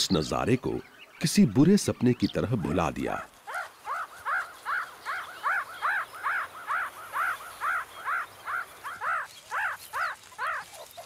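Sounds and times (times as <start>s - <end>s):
meerkat pup begging calls: 2.6s - 11.0s.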